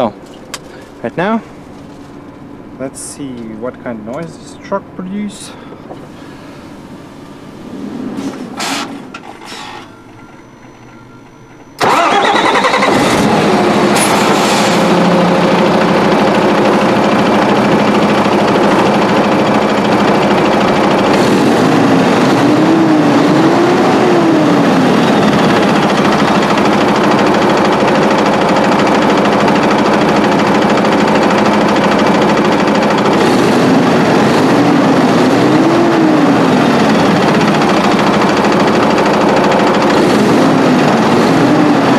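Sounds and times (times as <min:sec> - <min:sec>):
diesel truck engine starting: 0:00.0 - 0:41.9
faint wavering tone: 0:09.8 - 0:11.8.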